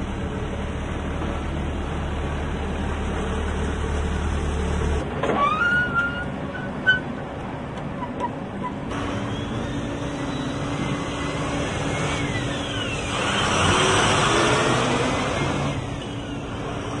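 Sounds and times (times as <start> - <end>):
truck engine humming: 0.0 - 17.0
high squeak: 5.3 - 7.2, 8.0 - 11.0, 11.6 - 14.0.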